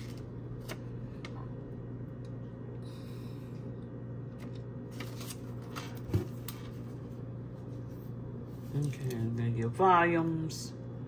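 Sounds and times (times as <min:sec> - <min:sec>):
low hum: 0:00.0 - 0:11.0
paper rustling: 0:04.4 - 0:07.0.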